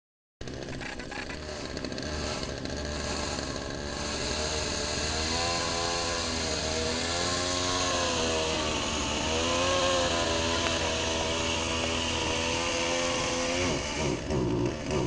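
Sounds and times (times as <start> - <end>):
chainsaw engine revving: 0.4 - 15.0.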